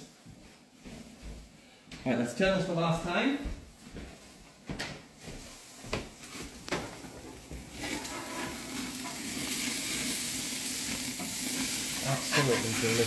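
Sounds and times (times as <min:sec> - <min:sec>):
burger patties sizzling on grill: 0:05.5 - 0:13.0.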